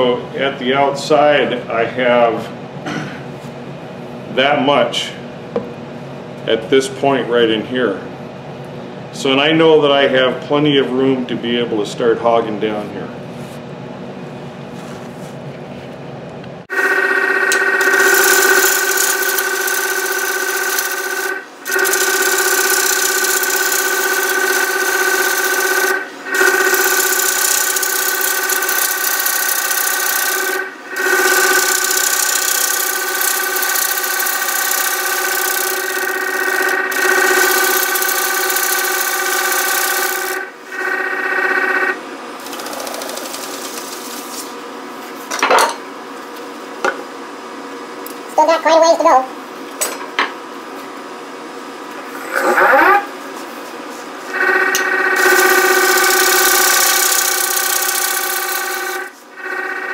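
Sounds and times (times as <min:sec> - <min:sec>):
lathe turning: 0:16.9 - 0:40.5, 0:54.4 - 0:59.9.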